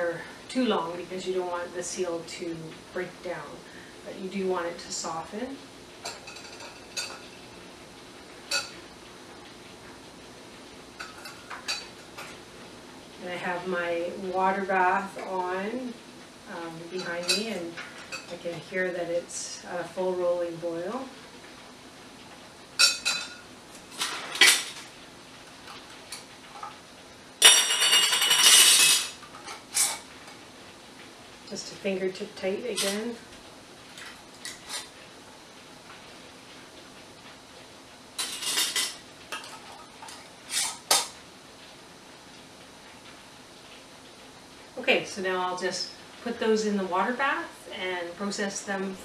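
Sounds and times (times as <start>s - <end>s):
background hiss: 0.0s - 49.0s
metal lids clinking on glass: 27.4s - 30.0s.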